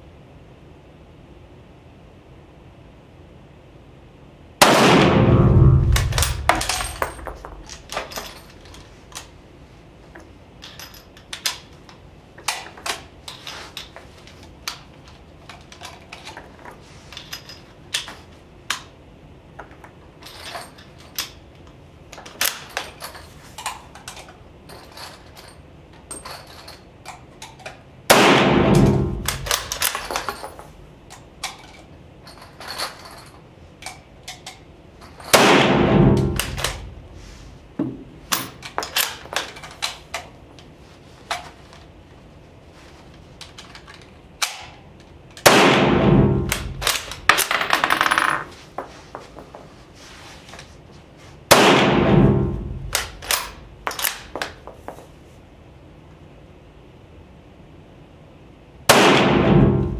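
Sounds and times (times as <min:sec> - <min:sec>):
rifle shots ringing in a room: 0:04.6 - 0:08.9, 0:28.0 - 0:31.7, 0:33.1 - 0:37.2, 0:44.4 - 0:48.5, 0:51.5 - 0:54.6, 0:58.8 - 0:59.9.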